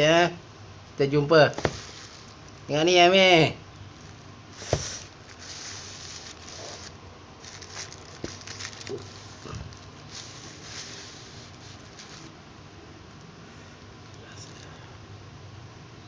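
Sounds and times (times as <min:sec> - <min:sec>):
knock on paper box: 0:01.6 - 0:02.0, 0:04.6 - 0:05.0
paper rustling: 0:01.6 - 0:02.4, 0:04.6 - 0:12.4.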